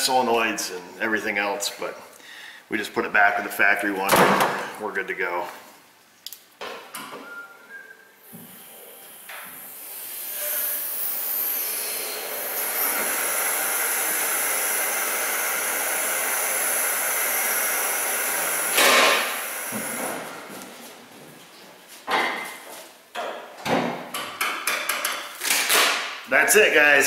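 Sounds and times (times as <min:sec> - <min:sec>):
hydraulic fluid hissing: 0:08.2 - 0:20.2.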